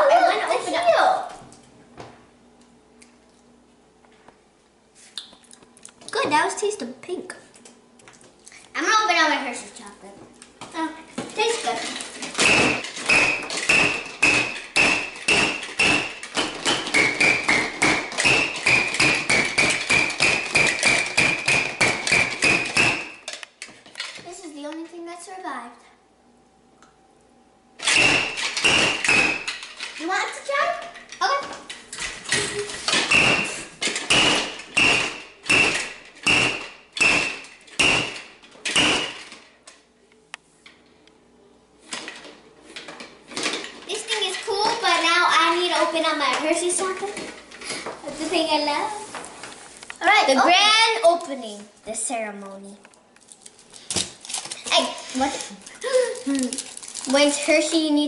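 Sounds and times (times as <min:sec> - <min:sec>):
toy hammer knocking and squeaking: 0:12.3 - 0:23.4, 0:27.8 - 0:29.7, 0:32.3 - 0:39.4.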